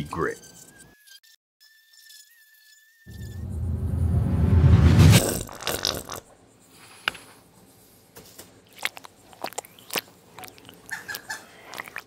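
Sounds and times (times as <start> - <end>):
paint squeezed from tube: 5.2 - 6.2, 8.8 - 12.0.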